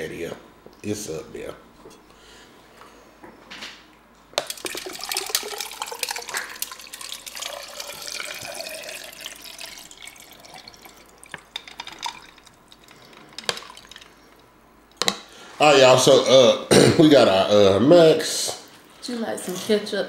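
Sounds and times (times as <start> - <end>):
water pouring into metal tumbler: 4.4 - 14.5.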